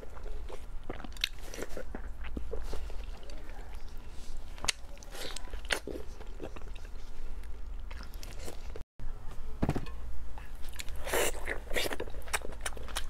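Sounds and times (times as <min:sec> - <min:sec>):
biting and chewing: 0:10.6 - 0:13.0.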